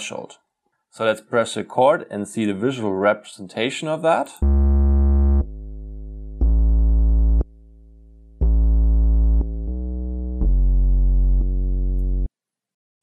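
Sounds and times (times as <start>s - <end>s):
synth bass held notes: 4.4s - 12.3s.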